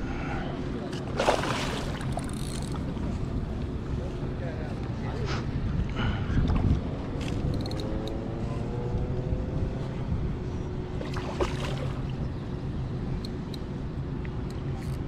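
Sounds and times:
faint engine drone: 0.0s - 15.0s
wind: 0.0s - 15.0s
water noise: 0.9s - 3.7s, 10.8s - 13.5s
water splashes: 1.1s - 2.4s, 11.0s - 12.3s.

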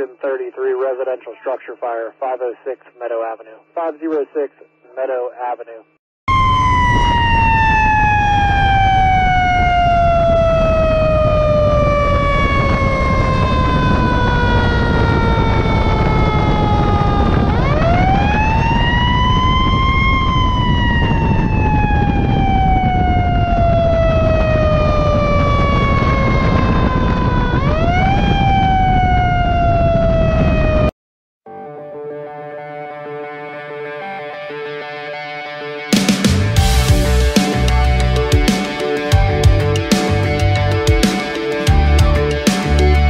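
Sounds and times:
mechanical siren wailing: 6.3s - 30.9s
engine and road rumble: 36.6s - 38.4s, 39.2s - 40.9s.

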